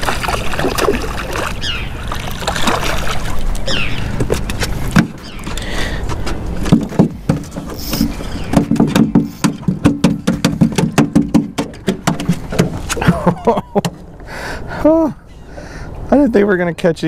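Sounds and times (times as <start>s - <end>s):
fish flopping on boat deck: 0.0s - 14.0s.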